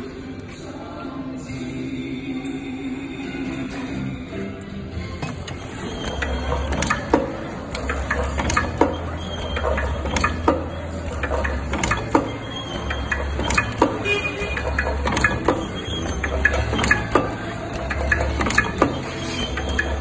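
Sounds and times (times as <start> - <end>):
machine motor hum: 5.2 - 20.0
mechanical clicks and clacks: 5.2 - 20.0.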